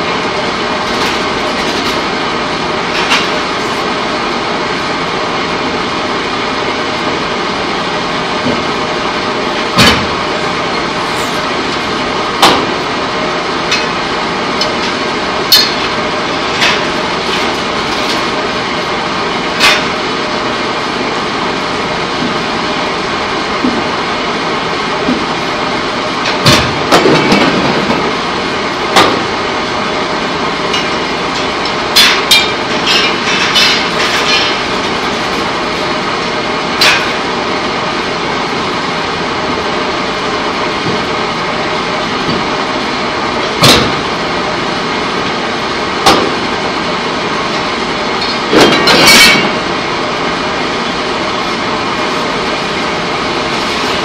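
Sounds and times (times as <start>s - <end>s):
loud machinery noise: 0.0s - 54.0s
metal clanks and bangs: 30.7s - 35.7s, 48.2s - 49.6s.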